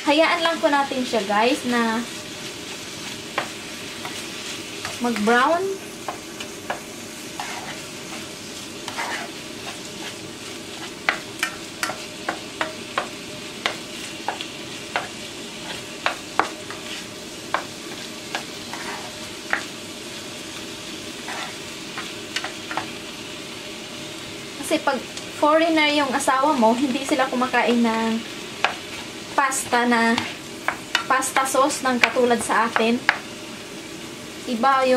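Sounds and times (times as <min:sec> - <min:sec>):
meat and onion sizzling in a pan: 0:00.0 - 0:34.9
spatula tapping and scraping a pan: 0:03.3 - 0:05.4, 0:06.0 - 0:10.2, 0:10.8 - 0:19.8, 0:21.2 - 0:23.0, 0:28.6 - 0:33.3.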